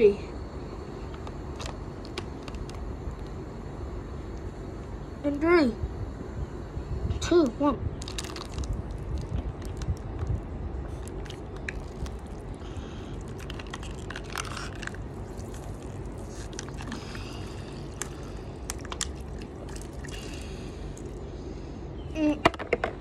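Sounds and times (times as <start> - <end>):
plastic bottle crinkling: 8.0 - 21.1
person chugging and slurping: 11.0 - 21.2.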